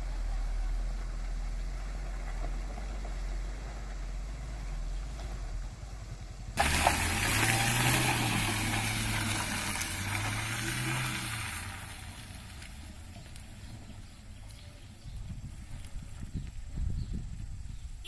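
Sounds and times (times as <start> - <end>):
car engine hum: 0.0 - 17.6
tyre hiss on dirt road: 6.6 - 13.4.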